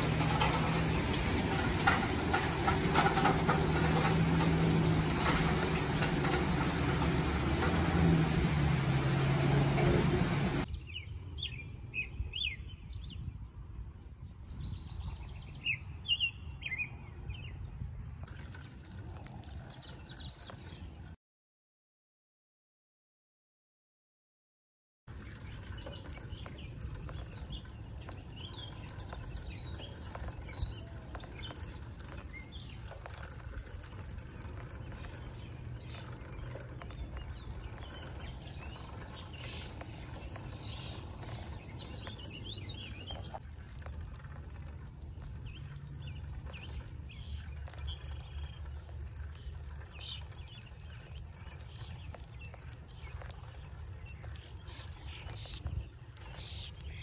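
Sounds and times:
bird chirps: 25.2s - 57.0s.

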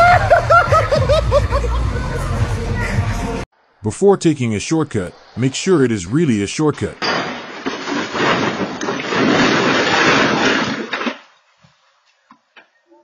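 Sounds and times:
car scraping and crashing: 7.0s - 11.3s.

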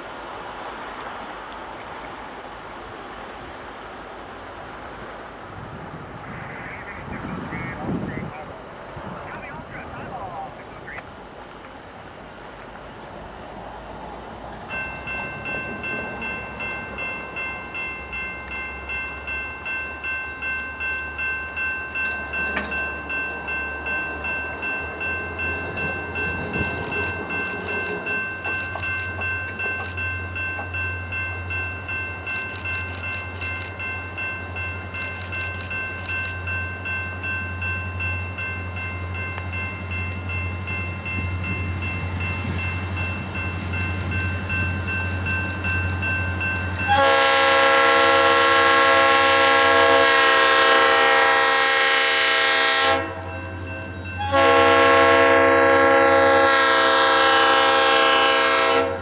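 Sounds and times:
diesel locomotive rumble: 3.6s - 59.0s
railway warning bell ringing: 14.7s - 59.0s.

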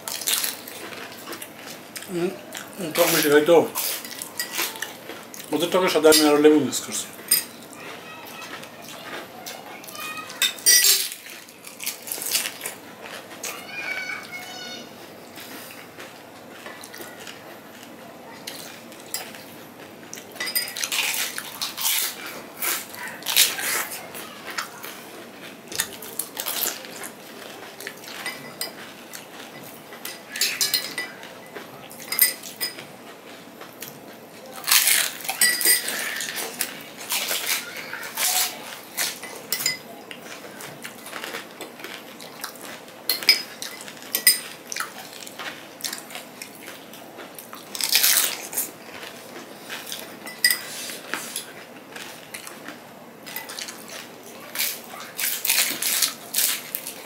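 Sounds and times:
people crunching and chewing: 0.0s - 57.0s
spoons clinking on glass bowls: 10.4s - 11.3s, 20.4s - 21.0s, 29.6s - 32.8s, 35.2s - 36.3s, 39.0s - 39.9s, 43.1s - 44.6s, 50.2s - 50.8s.

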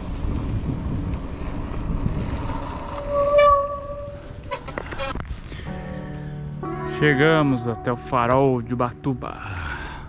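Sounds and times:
wind rumble on microphone: 0.0s - 5.6s
bike disc brake squealing: 0.3s - 5.8s.

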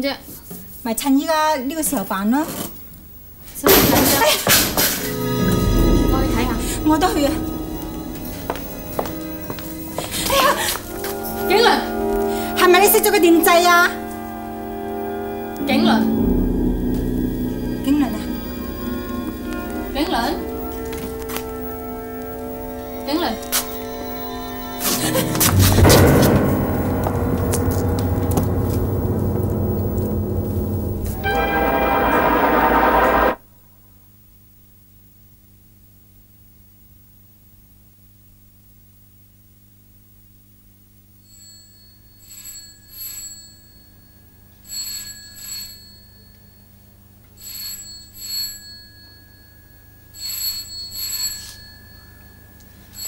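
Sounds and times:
faint metallic strikes: 4.8s - 33.4s
low rumbling drone: 5.0s - 33.5s.

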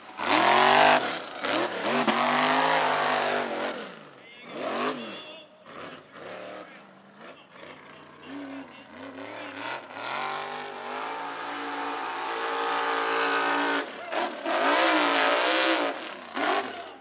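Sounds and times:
truck engine revving high: 0.0s - 17.0s.

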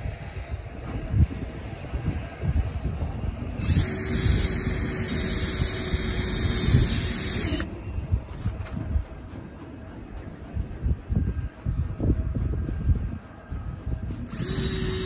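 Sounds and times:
wind rumble on microphone: 0.0s - 15.0s
cordless drill driving screw: 3.6s - 7.7s, 14.3s - 15.0s.

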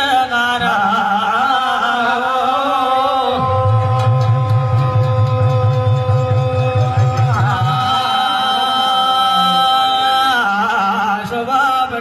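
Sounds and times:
man singing long note: 0.0s - 12.0s
low pulsing beat: 3.4s - 8.2s.

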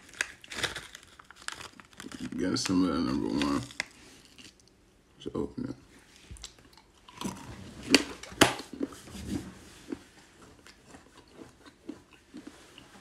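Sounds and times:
packet rustling: 0.0s - 4.0s
packet tearing open: 0.0s - 4.0s.

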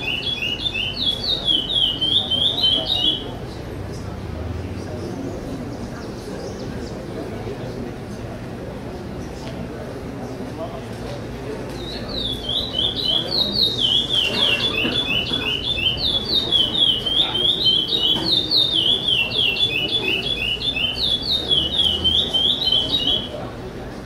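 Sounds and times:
bird singing whistled notes: 0.0s - 3.4s, 11.8s - 23.4s.

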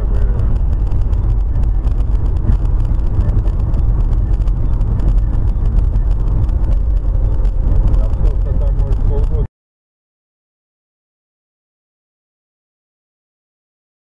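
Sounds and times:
car road and engine drone: 0.0s - 9.5s.

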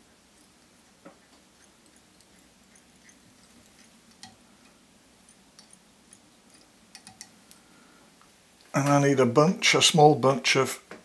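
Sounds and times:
faint ticks and clicks of thread winding: 0.4s - 8.7s.

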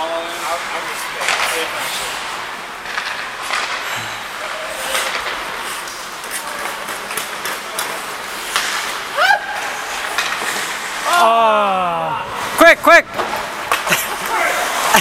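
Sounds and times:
skate blades scraping ice: 0.0s - 11.3s, 12.3s - 15.0s
sticks clacking on puck: 0.6s - 9.1s, 9.9s - 10.9s, 13.1s - 14.4s
person shouting: 11.0s - 12.3s.

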